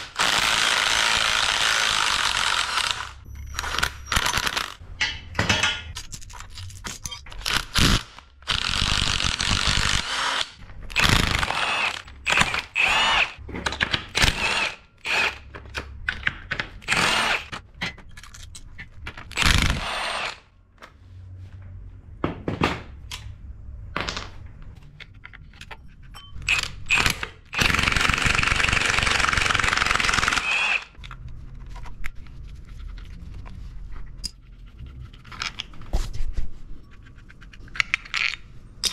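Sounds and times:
tools and parts clicking: 2.1 - 20.4, 24.0 - 32.2, 35.2 - 35.8, 36.8 - 38.9
cordless power tool running: 9.1 - 13.4, 27.6 - 30.9.

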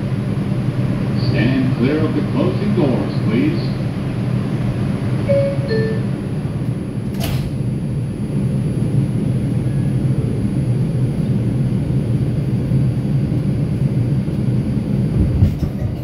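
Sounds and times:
subway car rumble from inside: 0.0 - 16.0.

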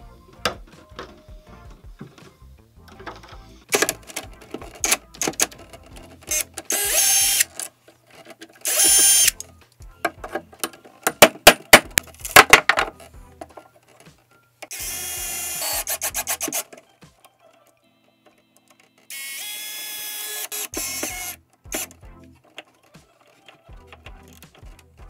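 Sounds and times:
handling clicks and knocks: 0.4 - 2.3, 2.9 - 6.7, 9.3 - 14.3, 21.0 - 25.0
cordless drill running: 6.3 - 7.5, 8.6 - 9.4, 14.7 - 16.6, 19.1 - 21.9.

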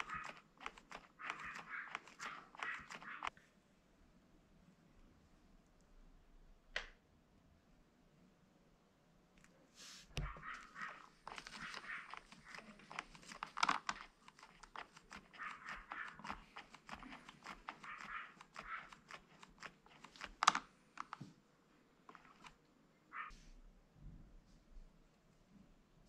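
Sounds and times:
rustling: 9.8 - 21.1.

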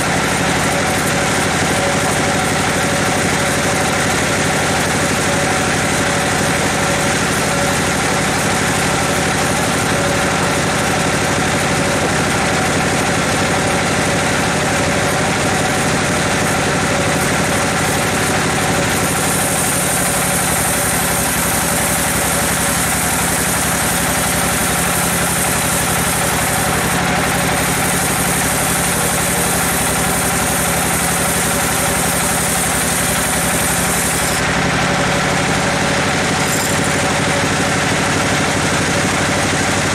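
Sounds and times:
band sawmill cutting log: 0.0 - 39.9.

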